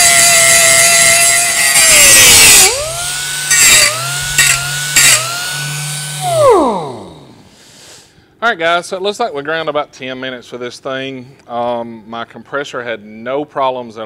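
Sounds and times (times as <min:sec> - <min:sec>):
pneumatic angle grinder grinding steel: 0:00.0 - 0:07.4.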